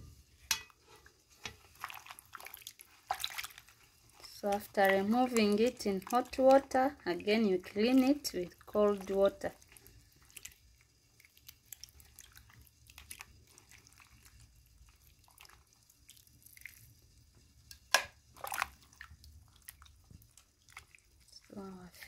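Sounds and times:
small wet splashes and drips: 1.4s - 22.0s.

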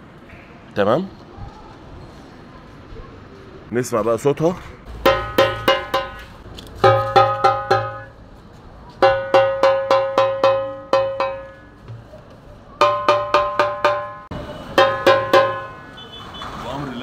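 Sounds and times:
hand drum strokes: 5.0s - 8.1s, 9.0s - 12.2s, 12.8s - 15.8s.

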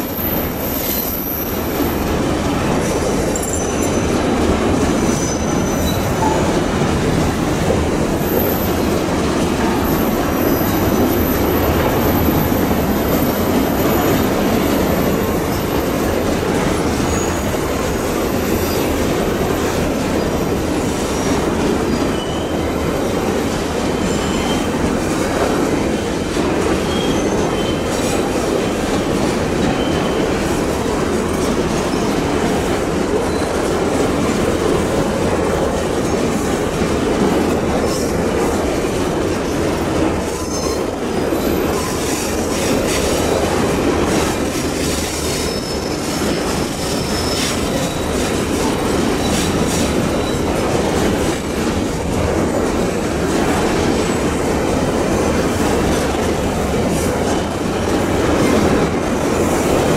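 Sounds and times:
train wheels rumbling on rail: 0.0s - 59.9s
wheel squeal: 5.0s - 6.6s, 9.9s - 15.8s, 17.0s - 17.6s, 21.1s - 22.7s, 24.0s - 24.8s, 26.8s - 28.1s, 29.7s - 30.4s, 40.3s - 43.1s, 44.8s - 50.6s.

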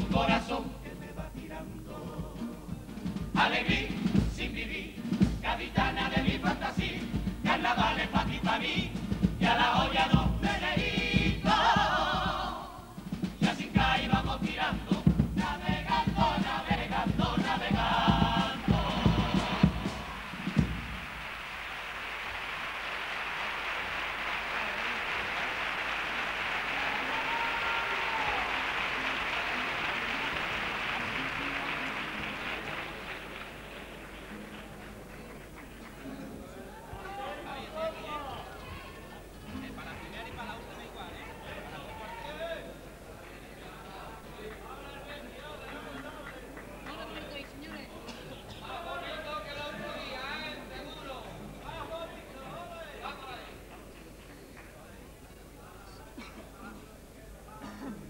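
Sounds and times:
guitar: 0.0s - 11.6s, 30.1s - 41.8s
male chorus singing in harmony: 0.0s - 20.4s
drum: 0.0s - 21.6s
audience applauding: 18.6s - 37.2s, 43.1s - 48.1s.

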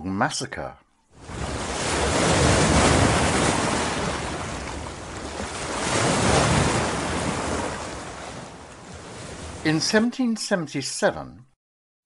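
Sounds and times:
wind: 0.7s - 10.2s
ocean waves washing in: 1.1s - 10.3s.

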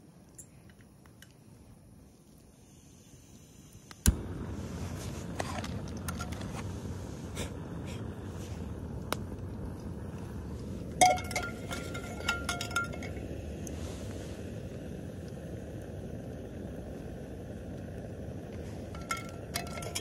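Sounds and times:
steady rushing noise: 4.1s - 20.0s.

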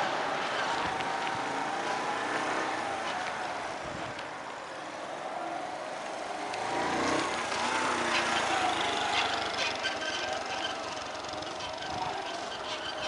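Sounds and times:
motorcycle engine passing: 6.3s - 13.0s.

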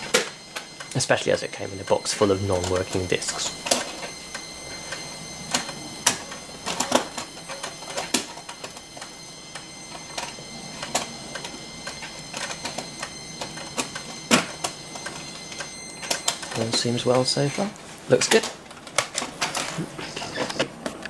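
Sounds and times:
faint high whine: 0.0s - 20.8s.

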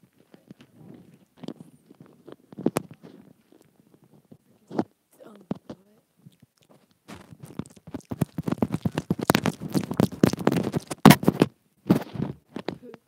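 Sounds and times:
wet mouth clicks on microphone: 5.5s - 11.4s.

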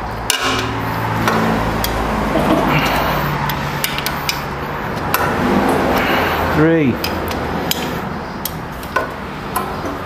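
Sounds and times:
steady low hum: 0.0s - 9.6s
sharp metallic clicks: 0.2s - 2.0s, 3.4s - 6.1s, 7.0s - 10.0s.

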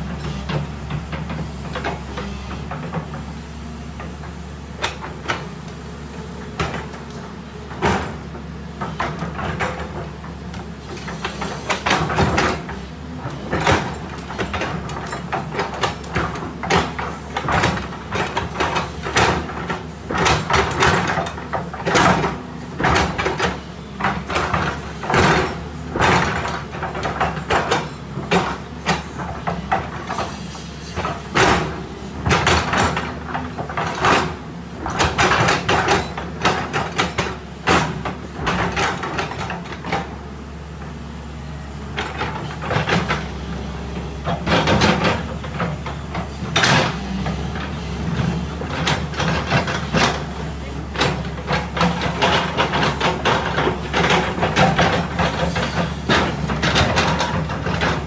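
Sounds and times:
excavator diesel engine running: 0.0s - 58.0s
metal clanks and knocks: 7.7s - 40.2s, 44.1s - 58.0s.

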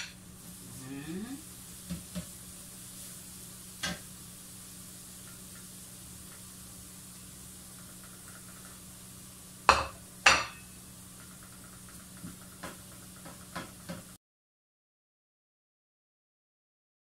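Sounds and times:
faint sizzle in oil: 0.0s - 14.2s
spatula knocking against pan: 9.7s - 10.6s
kitchenware clanking: 9.7s - 10.7s.

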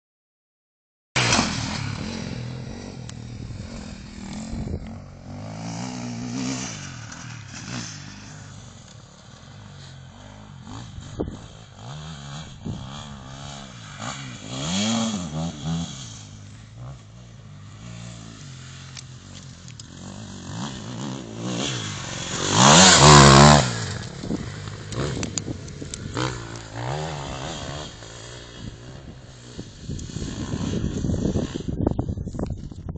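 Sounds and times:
dirt bike engine revving: 1.2s - 31.8s.

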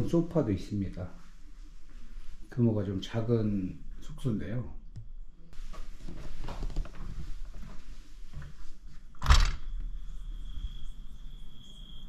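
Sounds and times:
crickets chirring: 9.3s - 12.0s.

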